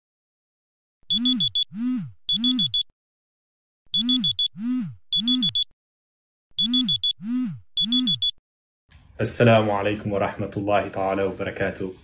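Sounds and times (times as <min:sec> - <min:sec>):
smartphone alarm beeping: 0:01.1 - 0:02.9, 0:03.9 - 0:05.7, 0:06.6 - 0:08.4.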